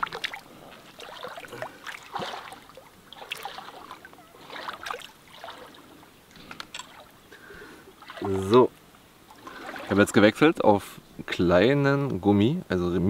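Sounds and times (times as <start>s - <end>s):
hand splashing in water: 0.0s - 5.9s, 8.0s - 8.6s, 9.4s - 10.1s.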